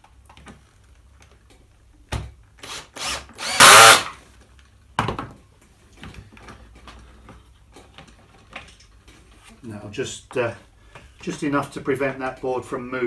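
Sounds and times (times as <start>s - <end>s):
cordless drill driving screw: 2.6s - 4.2s.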